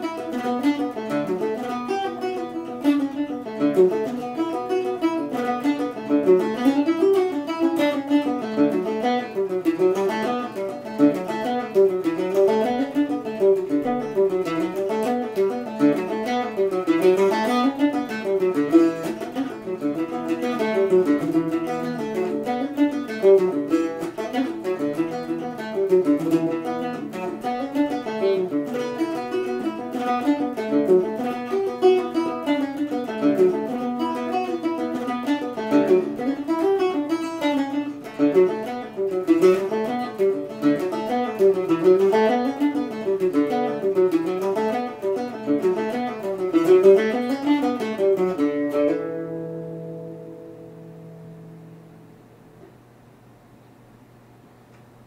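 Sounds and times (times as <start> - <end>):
mandolin playing a fast reel: 0.0 - 52.7.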